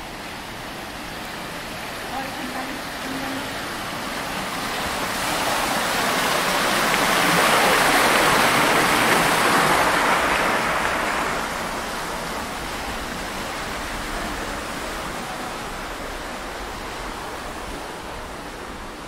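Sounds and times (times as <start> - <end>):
rain hissing: 0.0 - 19.0
rushing water: 0.0 - 19.0.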